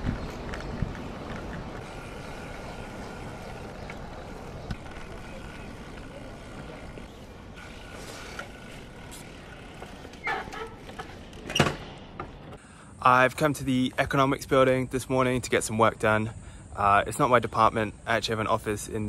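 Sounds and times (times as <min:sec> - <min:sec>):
wind on microphone: 0:00.0 - 0:05.6
bicycle tyres rolling over paving: 0:00.0 - 0:12.6.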